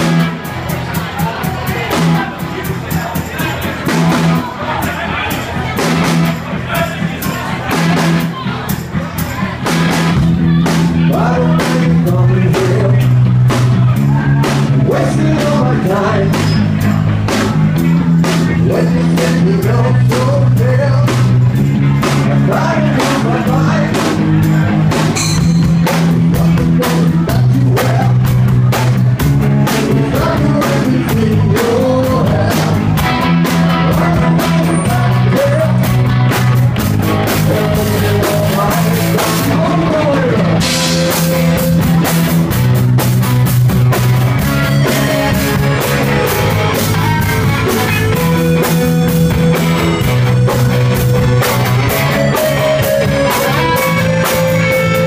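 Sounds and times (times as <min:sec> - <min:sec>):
electric bass line: 0:00.0 - 0:55.0
live rock band playing: 0:00.0 - 0:55.0
steady drum beat: 0:00.0 - 0:55.0
man singing into a microphone: 0:11.0 - 0:13.3, 0:14.2 - 0:16.8, 0:18.2 - 0:21.3, 0:22.0 - 0:24.5, 0:26.3 - 0:28.4, 0:29.6 - 0:36.1, 0:37.1 - 0:41.4.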